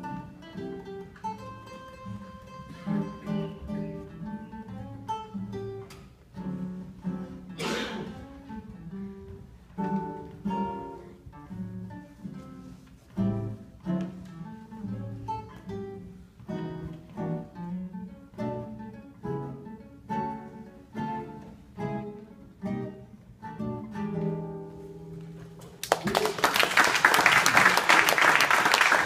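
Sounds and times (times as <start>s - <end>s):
acoustic guitar duet: 0.0s - 26.5s
loud applause: 25.8s - 29.0s.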